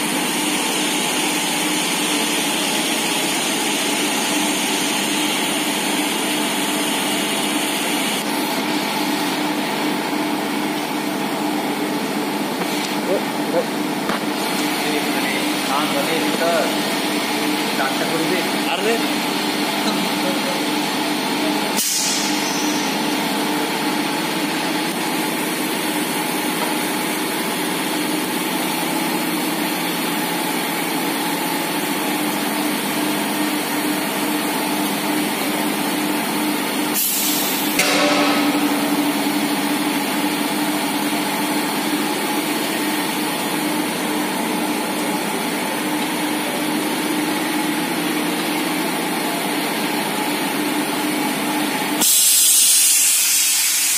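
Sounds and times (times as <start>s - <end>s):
compressed air hiss: 21.8s - 22.8s, 37.0s - 37.8s, 52.0s - 53.9s
machine hum: 22.7s - 51.9s.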